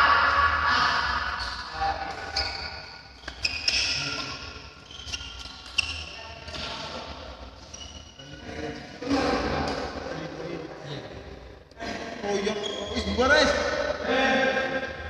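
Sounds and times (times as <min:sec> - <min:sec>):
shoes squeaking on wooden floor: 0:02.3 - 0:04.2, 0:04.8 - 0:06.7, 0:12.6 - 0:13.1.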